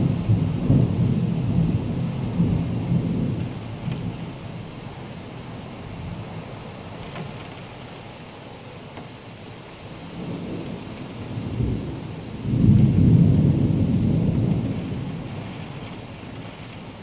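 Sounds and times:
thunder rumbling: 0.0 - 6.4, 10.0 - 17.0
heavy rain hissing: 0.0 - 17.0.

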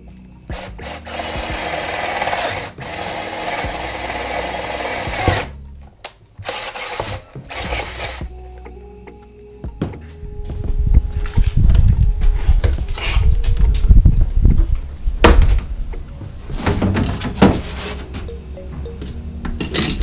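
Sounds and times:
cordless drill boring into wood: 0.5 - 5.5, 6.4 - 8.2.

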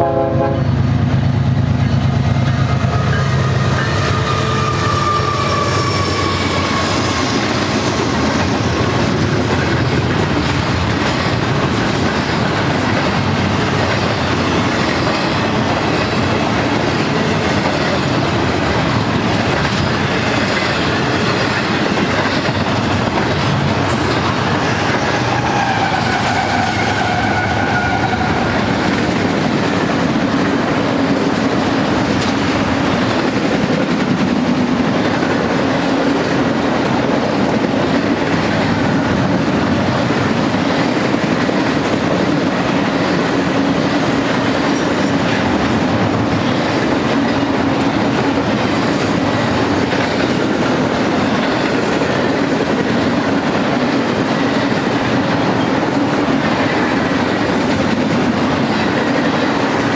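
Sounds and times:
train wheels rolling on rail: 0.0 - 59.9
high wheel squeal: 2.8 - 8.6.

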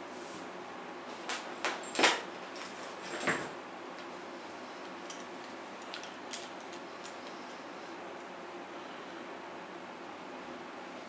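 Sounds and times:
handling knocks and clicks: 1.3 - 4.1, 5.0 - 7.5.

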